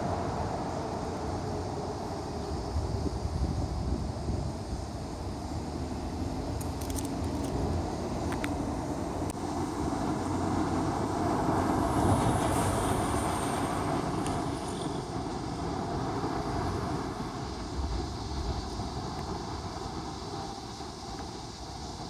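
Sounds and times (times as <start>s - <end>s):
passing vehicle rumbling: 7.1s - 21.9s.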